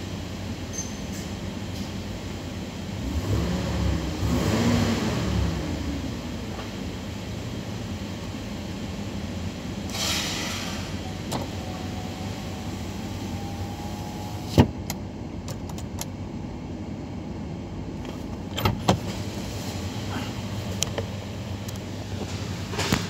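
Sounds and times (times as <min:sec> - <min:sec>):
car engine idling: 0:05.4 - 0:09.9, 0:10.8 - 0:22.9.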